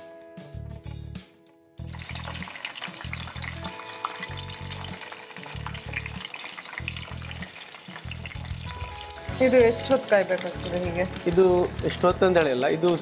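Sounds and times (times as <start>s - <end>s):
background music with low beat: 0.0s - 13.0s
onions sizzling in hot oil: 1.8s - 13.0s.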